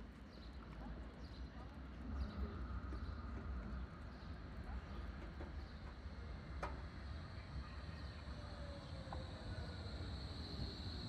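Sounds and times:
low street rumble: 0.0s - 11.0s
tram slowing into stop: 2.2s - 11.0s.

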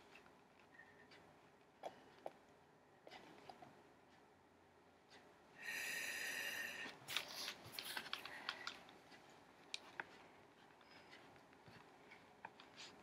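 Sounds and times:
book page turning: 7.1s - 8.7s.

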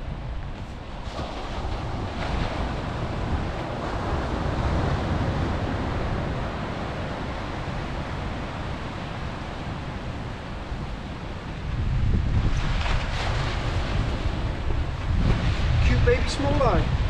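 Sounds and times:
surf washing over rocks: 0.0s - 17.0s
wind buffeting microphone: 0.0s - 17.0s.

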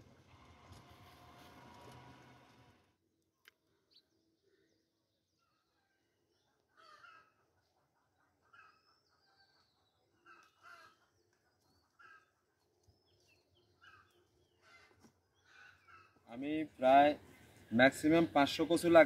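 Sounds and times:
small birds chirping: 3.7s - 19.0s
faint crows cawing: 6.6s - 12.5s, 13.8s - 16.5s.

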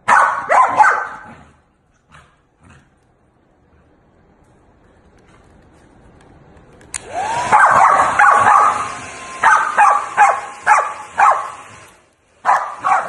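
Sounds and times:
dog barking: 0.0s - 1.5s, 7.4s - 11.6s, 12.4s - 13.0s.

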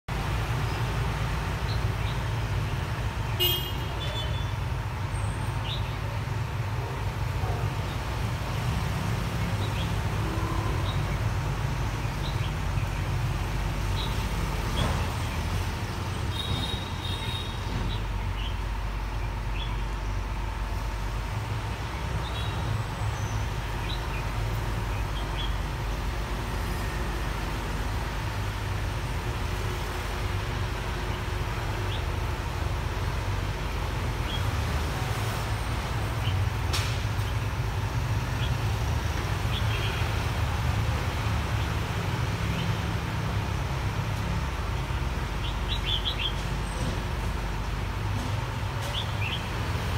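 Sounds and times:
city traffic rumble: 0.0s - 49.9s.

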